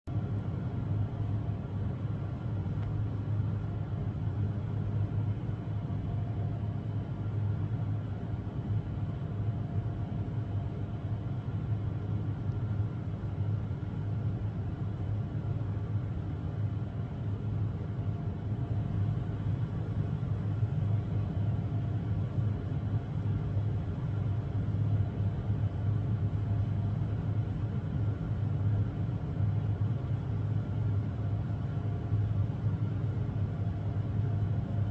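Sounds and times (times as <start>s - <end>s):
faint hum: 0.0s - 34.9s
low background rumble: 0.1s - 34.9s.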